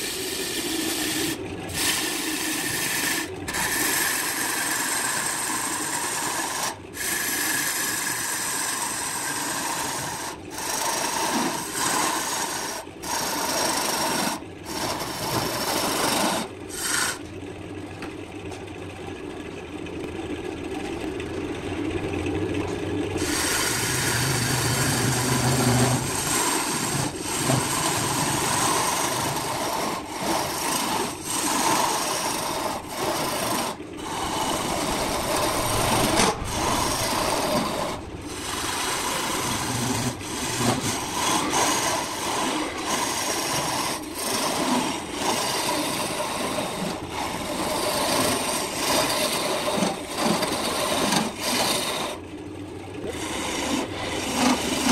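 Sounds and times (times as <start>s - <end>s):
gouge shaving spinning wood: 0.0s - 18.1s, 20.1s - 54.9s
wood lathe running: 0.0s - 18.1s, 20.8s - 54.9s.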